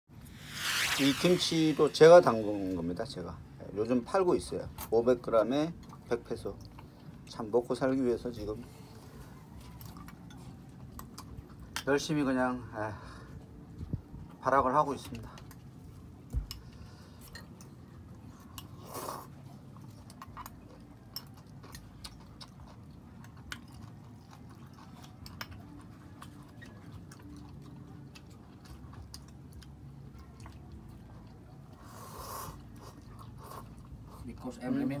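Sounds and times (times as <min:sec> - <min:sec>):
rushes of noise: 0:00.2 - 0:02.6.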